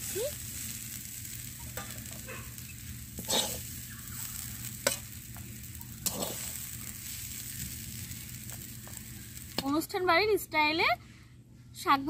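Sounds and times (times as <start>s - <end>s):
hot oil sizzling: 0.0s - 10.4s
spatula scraping frying pan: 1.8s - 5.2s, 5.9s - 6.8s.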